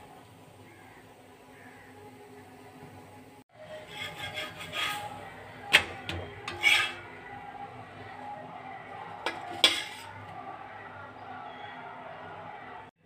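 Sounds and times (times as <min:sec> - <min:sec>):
metal spatula scraping griddle: 0:03.6 - 0:07.2, 0:09.2 - 0:10.3
clinks on steel plate: 0:09.3 - 0:10.1.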